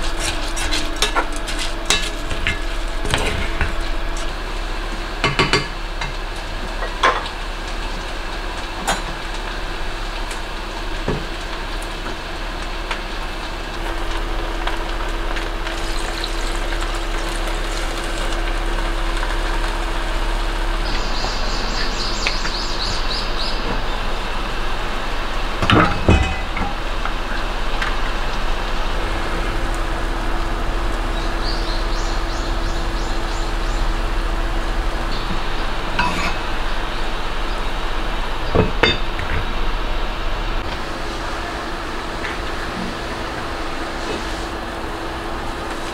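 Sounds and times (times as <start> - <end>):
constant hum: 0.0 - 45.9
food sizzling in a pot: 4.2 - 23.4.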